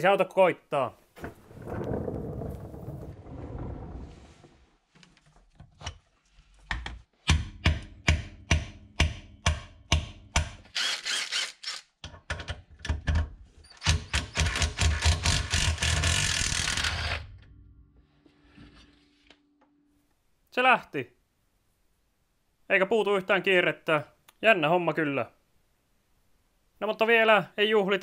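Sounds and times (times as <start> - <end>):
impact wrench hammering on bolt: 7.3 - 10.6.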